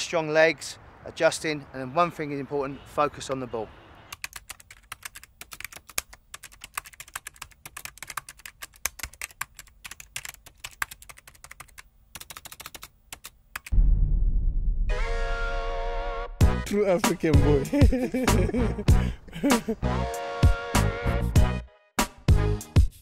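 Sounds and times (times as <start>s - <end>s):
bass-heavy music: 13.8s - 23.0s.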